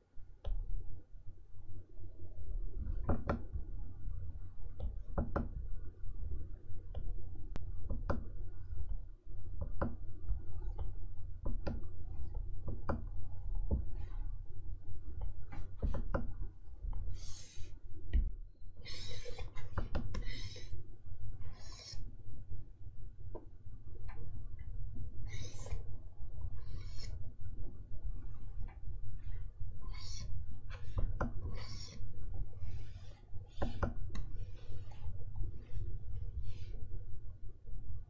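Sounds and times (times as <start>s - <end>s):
steady low hum: 0.0s - 38.0s
pen scratching across screen: 21.5s - 22.0s, 29.8s - 33.9s.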